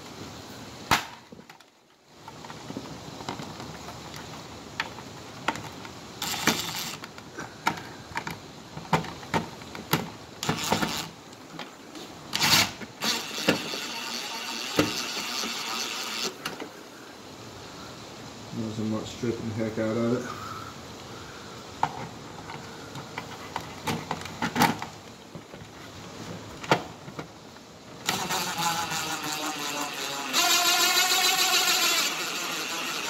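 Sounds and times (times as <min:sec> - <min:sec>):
screw being driven rasping: 0:06.2 - 0:07.1, 0:10.4 - 0:11.1, 0:12.4 - 0:16.5, 0:28.0 - 0:33.0.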